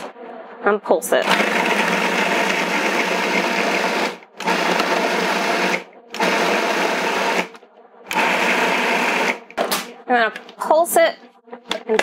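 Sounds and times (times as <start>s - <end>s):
food processor chopping chicken: 1.2s - 7.5s, 8.1s - 9.4s.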